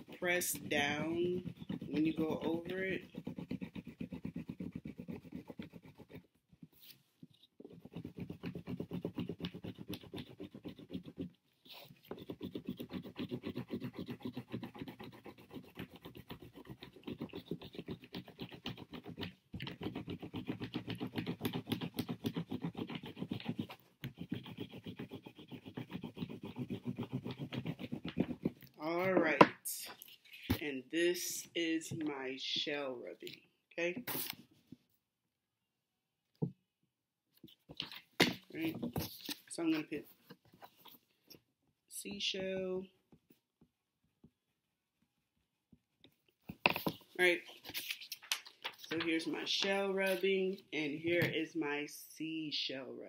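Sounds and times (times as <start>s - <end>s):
crayon scratching on paper: 0.0s - 7.0s, 7.6s - 29.4s.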